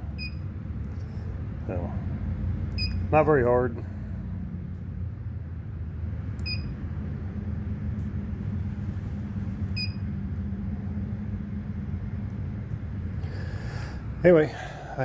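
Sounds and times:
steady low hum: 0.0 - 15.0
short electronic beeps: 2.8 - 3.1, 6.4 - 6.8, 9.8 - 10.0.

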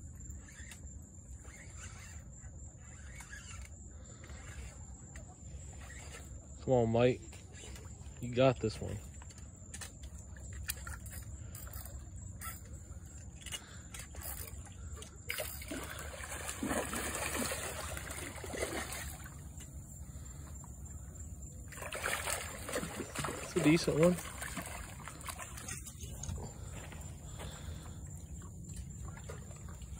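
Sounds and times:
fish splashing in water: 14.0 - 29.9.

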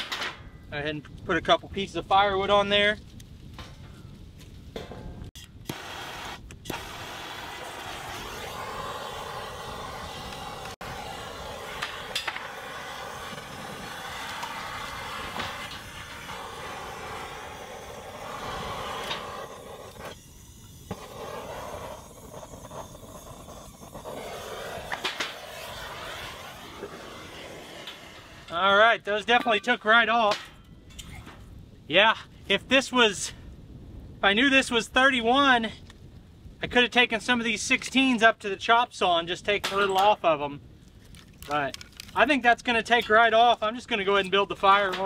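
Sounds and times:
propane torch hissing: 5.6 - 28.6.

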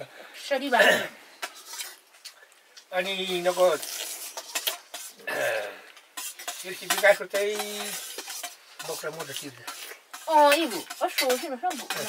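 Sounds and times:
spoon scraping steel bowl: 1.4 - 2.0, 3.1 - 5.2, 6.2 - 12.0
person slurping: 3.8 - 5.9.

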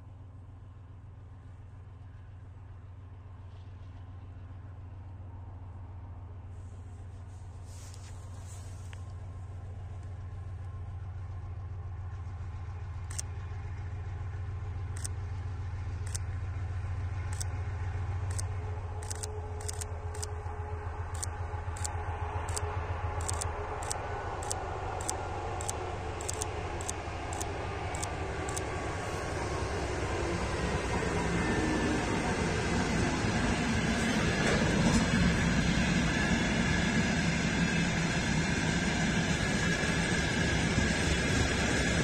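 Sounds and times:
locomotive engine drone: 0.0 - 42.0
sharp clicks: 18.3 - 20.3, 21.2 - 22.6, 23.2 - 28.7.

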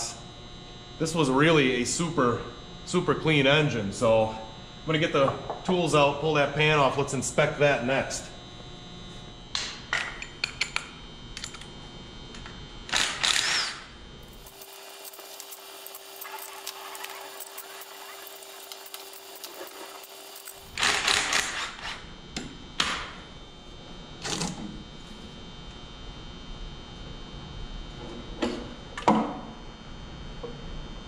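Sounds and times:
cordless drill spinning out bolts: 12.9 - 22.0.

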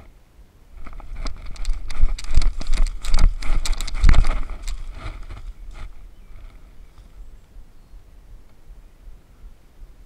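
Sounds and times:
camera thumps: 0.8 - 6.0.

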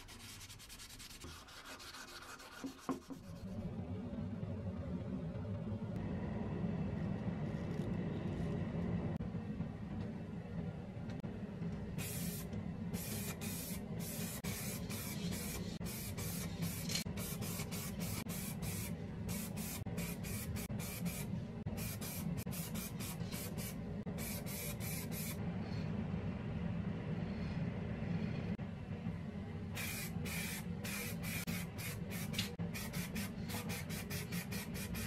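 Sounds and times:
steady low hum: 0.0 - 35.0
spray-paint can hissing: 12.0 - 12.4, 13.0 - 25.4, 29.8 - 35.0.

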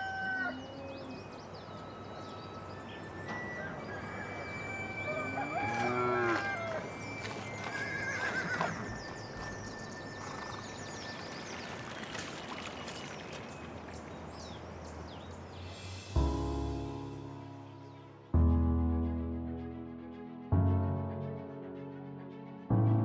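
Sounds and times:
small birds chirping: 0.2 - 5.3, 6.6 - 16.2
music: 1.7 - 8.7, 15.6 - 23.0
horse whinnying: 4.0 - 10.9.

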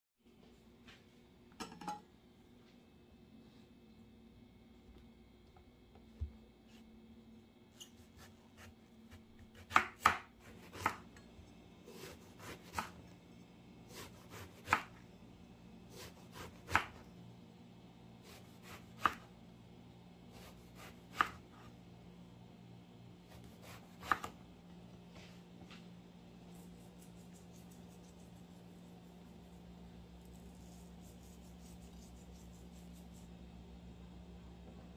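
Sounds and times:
knife slicing eggplant: 7.7 - 11.1, 11.9 - 13.0, 13.9 - 15.0, 15.9 - 17.0, 18.2 - 19.3, 20.3 - 21.7, 23.3 - 24.4, 30.2 - 33.2.

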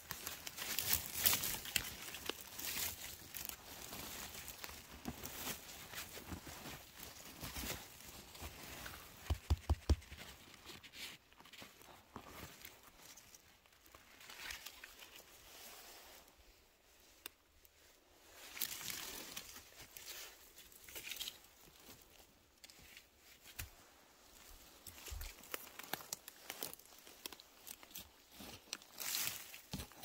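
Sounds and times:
rustling and crunching forest litter: 0.0 - 30.0
twigs snapping: 0.1 - 3.6, 24.8 - 30.0.

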